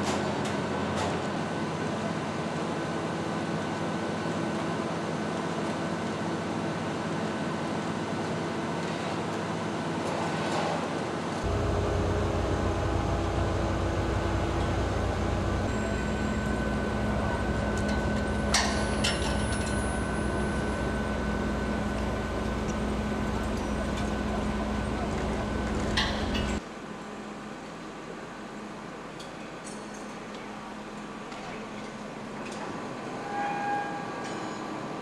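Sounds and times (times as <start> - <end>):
heavy machinery engine drone: 11.1 - 26.6.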